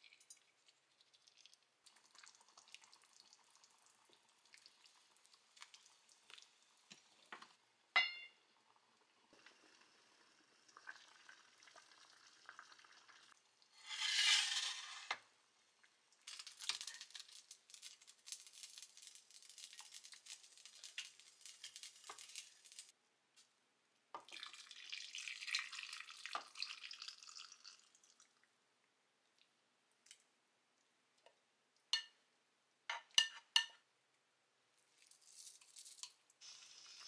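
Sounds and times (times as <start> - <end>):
crackling and dripping: 0.0 - 7.6, 15.2 - 23.5, 24.1 - 32.2, 34.8 - 37.0
broth being poured: 9.2 - 15.1, 24.2 - 28.4, 35.0 - 37.0.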